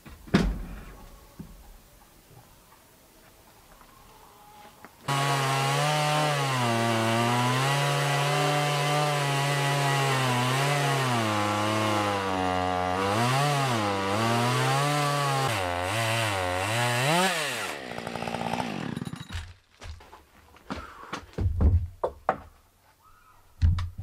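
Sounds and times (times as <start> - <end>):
chainsaw ripping a log: 5.1 - 19.7.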